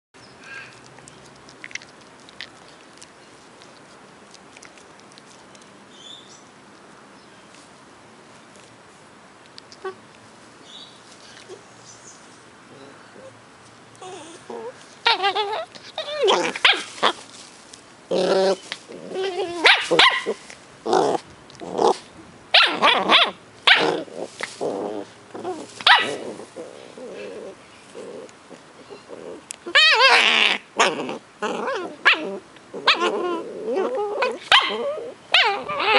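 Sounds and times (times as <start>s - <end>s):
puppies chewing clicks and rustles: 0.4s - 5.9s
puppies growling: 14.0s - 17.2s, 18.1s - 22.1s, 22.7s - 35.9s
puppy high squeaks: 31.7s - 35.9s.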